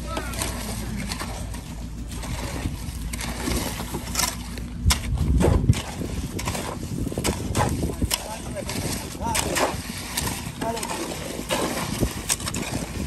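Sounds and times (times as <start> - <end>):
hoe scraping concrete mix: 0.0 - 13.0
low rumble: 0.0 - 13.0.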